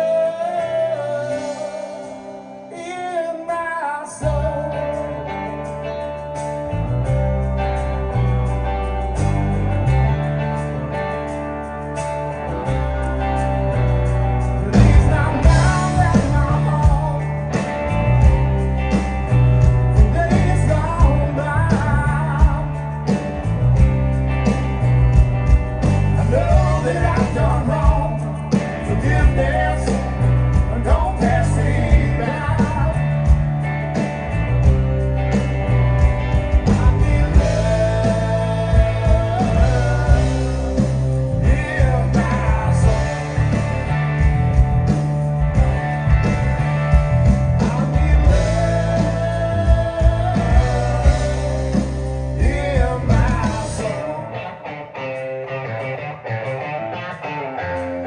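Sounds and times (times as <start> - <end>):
drum kit: 0.0 - 3.6, 4.2 - 54.2
man singing: 0.0 - 5.3, 14.6 - 18.4, 19.6 - 23.2, 26.0 - 33.4, 36.5 - 44.1, 47.5 - 54.8
bass guitar: 0.0 - 58.0
electric guitars: 0.0 - 58.0.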